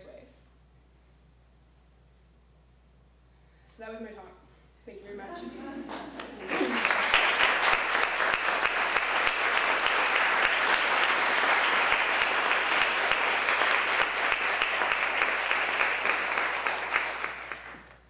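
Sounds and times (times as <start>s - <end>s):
audience applauding: 5.8s - 18.0s.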